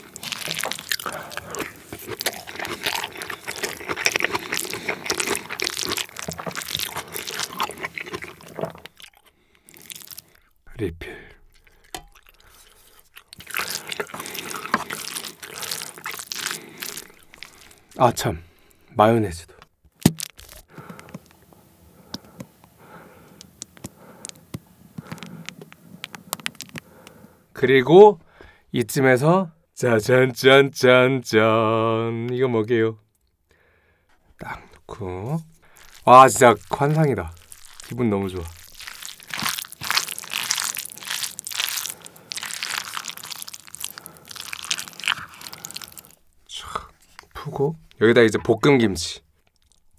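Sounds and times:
squeeze bottle squirting: 0.0s - 9.0s, 11.8s - 18.0s, 20.0s - 20.7s, 35.5s - 46.3s
spoon mixing wet food in bowl: 0.0s - 10.4s, 11.4s - 18.0s, 35.5s - 46.2s
small clicks and pops: 23.4s - 27.2s.

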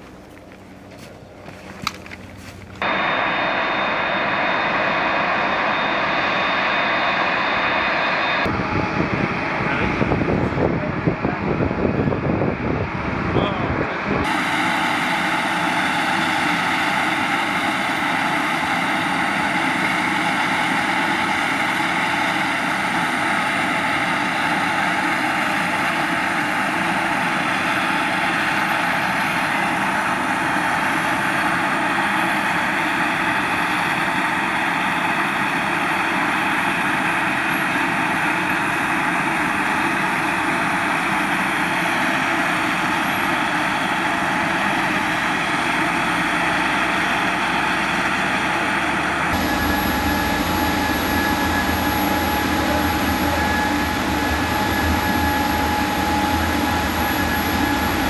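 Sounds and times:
aircraft engine whine: 0.0s - 58.0s.

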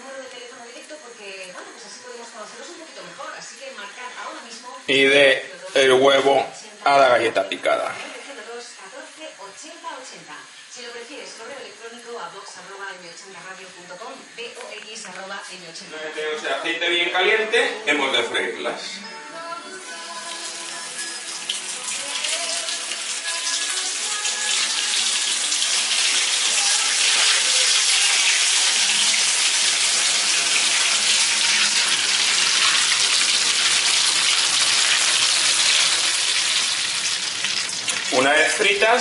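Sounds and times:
food sizzling in hot oil: 19.6s - 39.0s.

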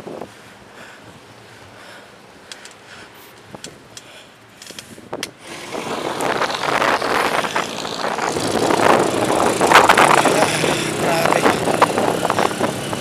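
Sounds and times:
traffic: 0.0s - 13.0s
wind rushing over microphone: 4.6s - 13.0s.

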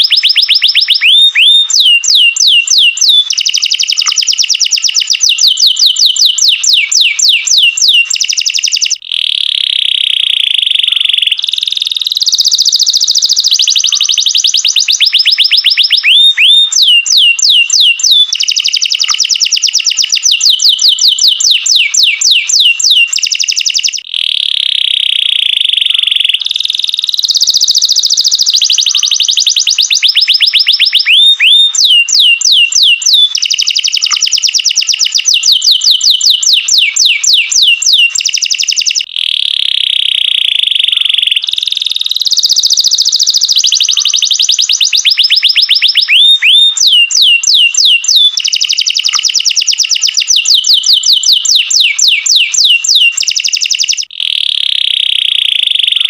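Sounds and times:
canary singing: 0.0s - 56.0s.

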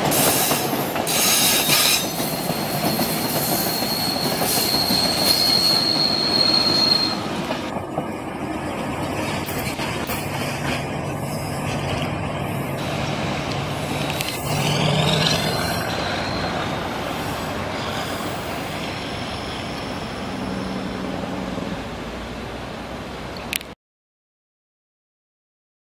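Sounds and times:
train wheels rumbling on rails: 0.0s - 23.0s
high sliding squeal: 0.2s - 7.7s, 13.7s - 21.6s.

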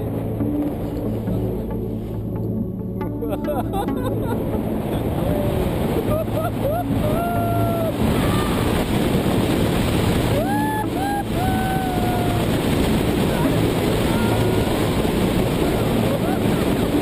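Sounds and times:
wind buffeting microphone: 4.5s - 17.0s.

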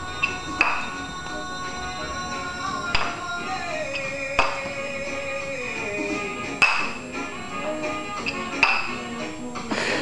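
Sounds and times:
background music: 0.0s - 10.0s
wooden ball knocking onto stick: 0.6s - 0.9s, 2.9s - 3.2s, 6.6s - 7.0s, 8.6s - 8.9s.

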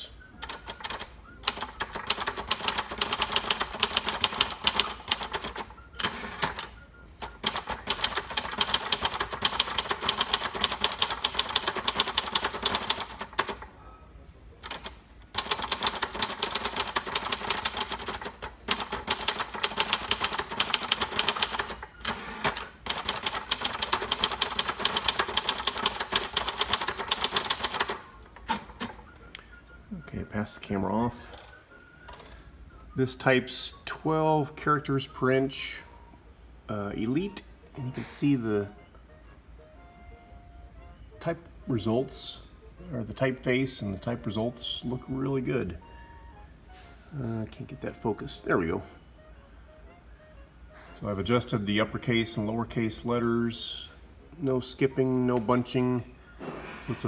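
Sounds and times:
typewriter typing fast: 0.4s - 6.7s, 7.3s - 13.7s, 14.6s - 28.0s.

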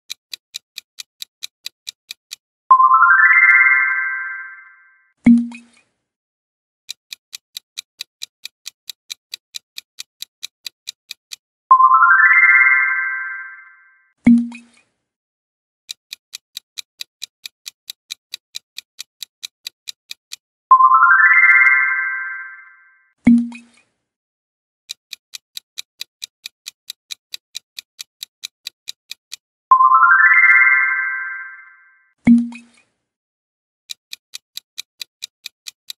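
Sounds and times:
countdown clock ticking: 0.1s - 5.6s, 6.9s - 14.6s, 15.9s - 23.6s, 24.9s - 32.6s, 33.9s - 35.9s
bright ringing chime: 2.7s - 5.0s, 11.7s - 14.0s, 20.7s - 23.0s, 29.7s - 32.0s.

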